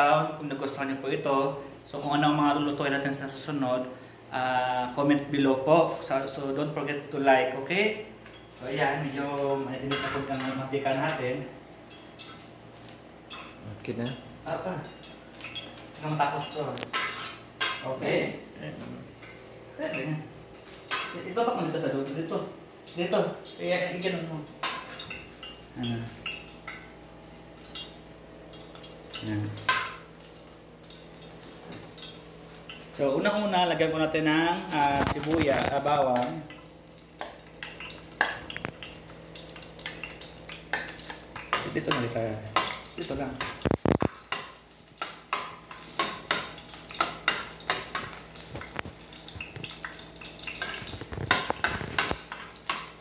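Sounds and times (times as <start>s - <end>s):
faint sizzle: 0.0s - 53.0s
oil crackling and popping in pan: 9.2s - 13.6s, 14.8s - 17.9s, 19.8s - 53.0s
spoon clacking against pan: 37.2s - 53.0s.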